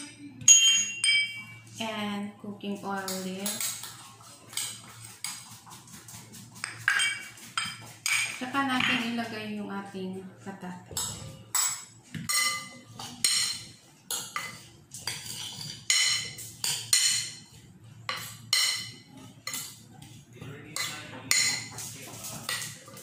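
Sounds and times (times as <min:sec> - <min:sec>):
metal spoon clinking on ceramic bowl: 0:00.4 - 0:01.7, 0:06.6 - 0:09.1, 0:11.0 - 0:17.4.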